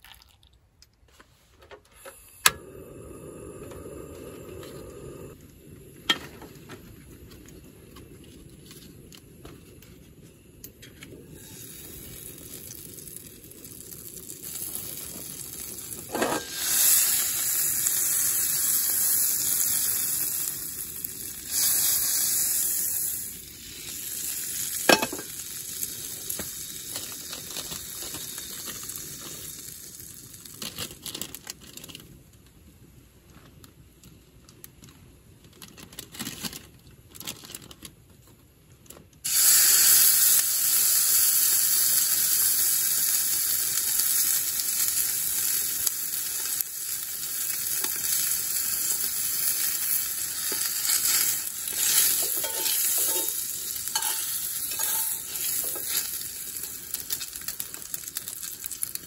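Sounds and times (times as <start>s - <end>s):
butter sizzling in a skillet: 11.3s - 30.6s, 39.3s - 59.0s.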